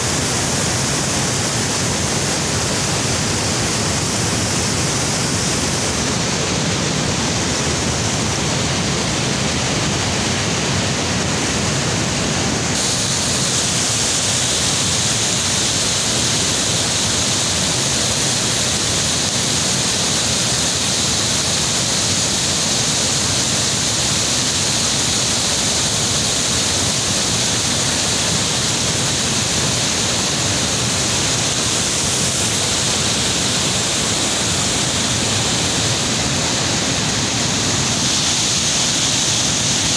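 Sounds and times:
water rushing over rocks: 0.0 - 39.9
waterfall pouring: 12.8 - 39.9.

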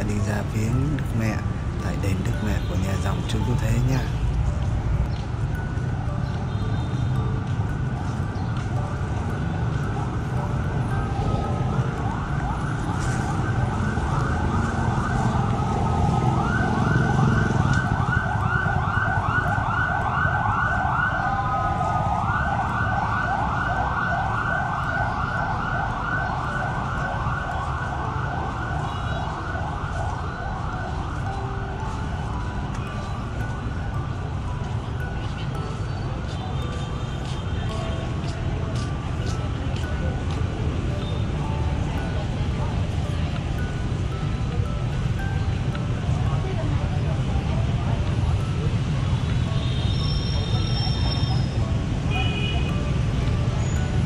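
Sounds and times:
emergency siren yelping: 9.7 - 34.1.

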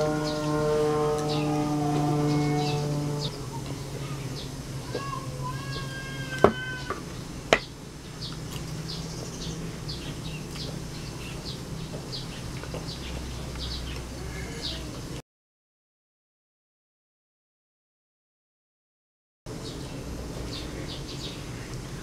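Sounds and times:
whistled notes: 0.0 - 4.4
birds chirping: 0.0 - 15.2, 19.5 - 22.0
steady low hum: 0.0 - 15.2.

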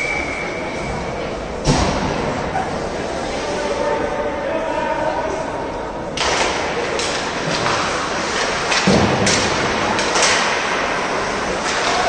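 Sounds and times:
hockey sticks and puck knocking: 6.2 - 12.0.

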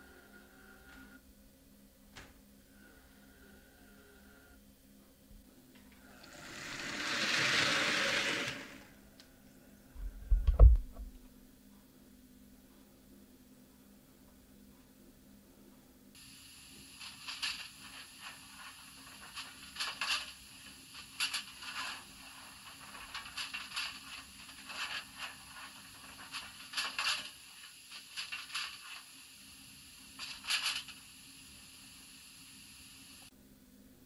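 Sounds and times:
steady hiss: 16.2 - 33.3.

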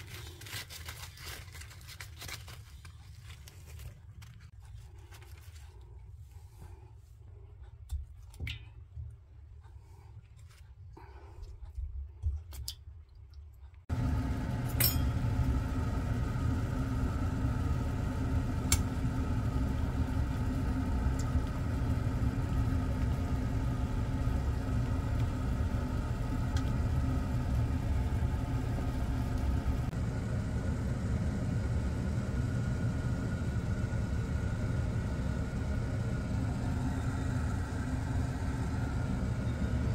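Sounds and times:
pot boiling on stovetop: 13.8 - 39.9.

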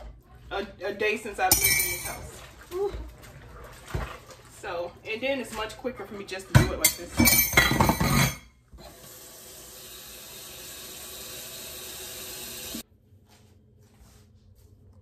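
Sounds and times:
faucet water running into sink: 8.8 - 12.8.

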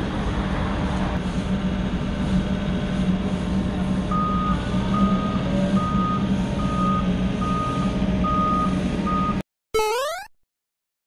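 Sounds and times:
diesel engine hum: 0.0 - 9.4
excavator warning alarm beeping: 4.1 - 10.2.

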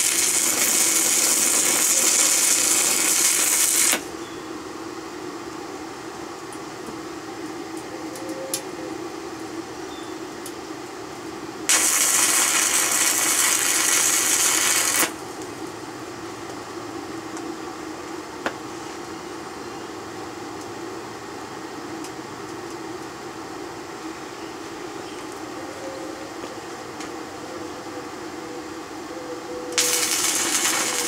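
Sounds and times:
welding arc crackling and hissing: 0.0 - 4.1, 11.7 - 15.4, 29.8 - 31.0
steady low hum: 0.0 - 31.0.

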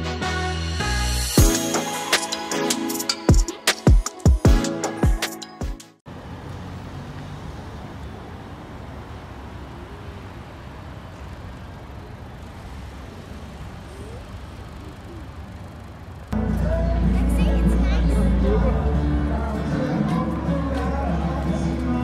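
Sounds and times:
intro music: 0.0 - 6.0, 16.4 - 22.0
cars passing on a street: 6.0 - 22.0.

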